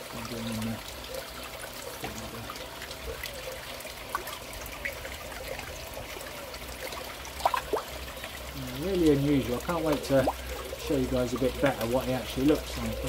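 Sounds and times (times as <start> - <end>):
pond water trickling and splashing: 0.0 - 13.0
small water plops and drips: 0.0 - 13.0.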